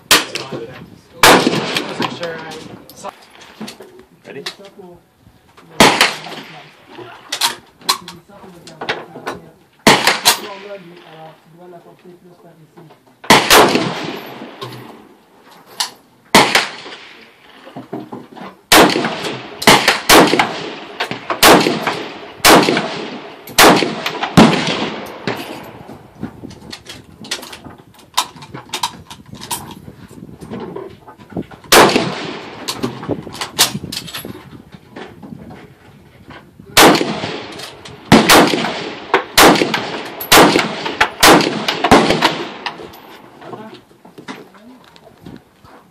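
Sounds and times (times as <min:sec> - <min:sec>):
rifle gunshots with echo: 0:00.1 - 0:00.5, 0:01.2 - 0:02.4, 0:05.8 - 0:06.8, 0:09.8 - 0:11.1, 0:13.2 - 0:15.1, 0:16.3 - 0:17.6, 0:18.7 - 0:25.9, 0:31.7 - 0:32.9, 0:36.8 - 0:43.3.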